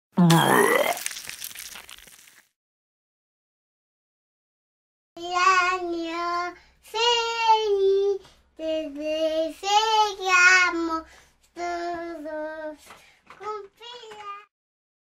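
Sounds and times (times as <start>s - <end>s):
child singing: 5.2s - 14.5s.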